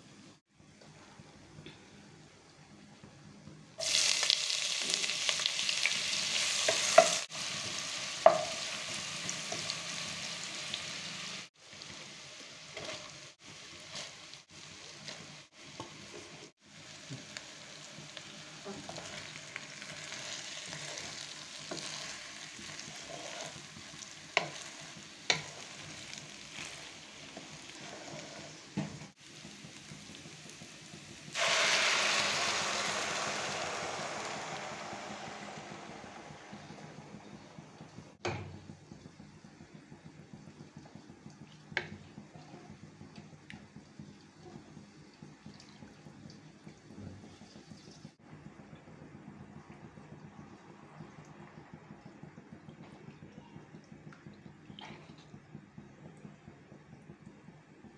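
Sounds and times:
hot fat sizzling in a pot: 0:03.8 - 0:48.2
rice stirred in a pot: 0:11.5 - 0:17.2, 0:18.0 - 0:37.7.

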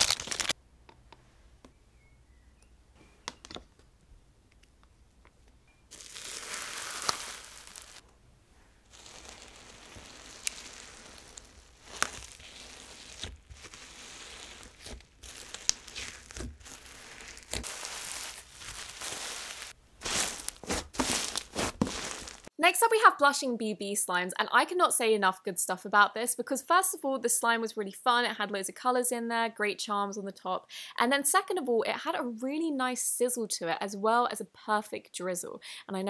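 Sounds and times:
slime crackly hiss: 0:05.9 - 0:08.0, 0:08.9 - 0:22.5.

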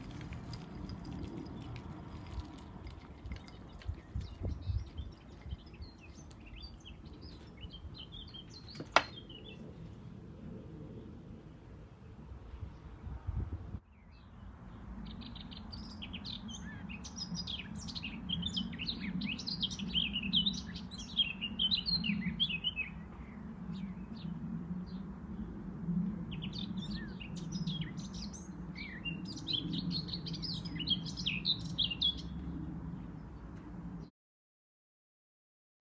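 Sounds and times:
small birds chirping: 0:00.0 - 0:09.7, 0:13.9 - 0:25.0, 0:26.3 - 0:32.4.

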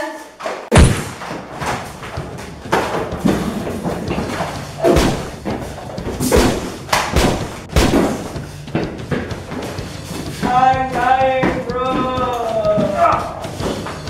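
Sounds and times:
punches thudding and smacking: 0:00.7 - 0:14.0.

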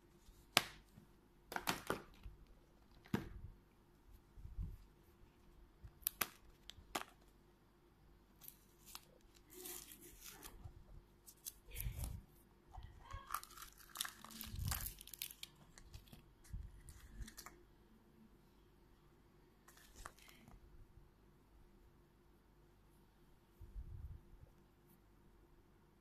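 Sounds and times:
plastic crinkling: 0:12.8 - 0:17.6.

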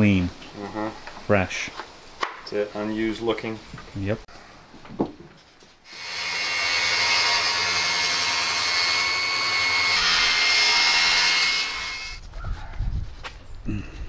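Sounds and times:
circular saw cutting board: 0:05.9 - 0:12.2.

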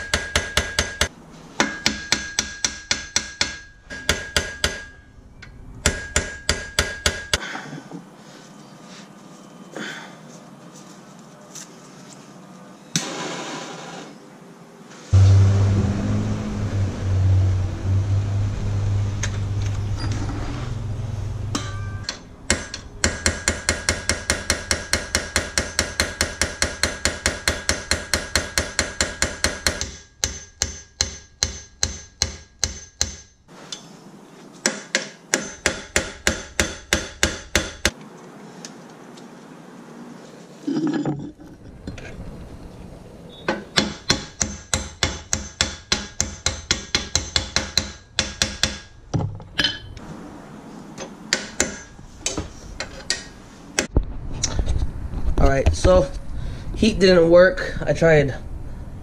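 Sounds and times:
hammer striking a metal punch: 0:00.0 - 0:05.1, 0:05.8 - 0:07.4, 0:21.5 - 0:33.3, 0:34.6 - 0:37.9, 0:43.5 - 0:48.9, 0:51.3 - 0:52.4
torch flame hissing: 0:13.0 - 0:14.2.

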